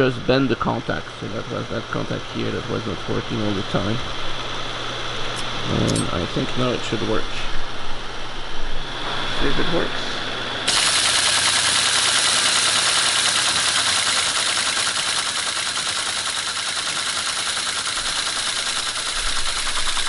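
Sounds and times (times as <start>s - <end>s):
teletype tape reader clattering: 10.7s - 20.0s.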